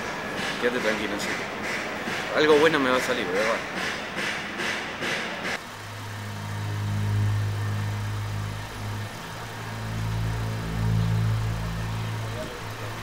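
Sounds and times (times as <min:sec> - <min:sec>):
car engine idling: 0:05.6 - 0:13.0.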